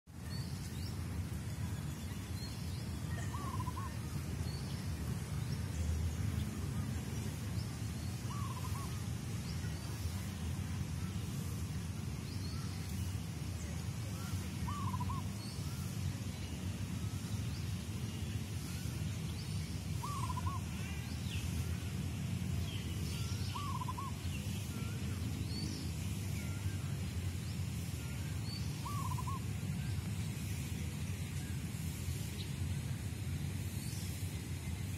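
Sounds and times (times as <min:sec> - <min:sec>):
faint high bird chirps: 0:02.2 - 0:04.2
bird wavering call: 0:03.1 - 0:04.0, 0:08.3 - 0:09.0, 0:14.7 - 0:15.3, 0:20.0 - 0:20.8, 0:23.2 - 0:24.2, 0:28.8 - 0:29.5.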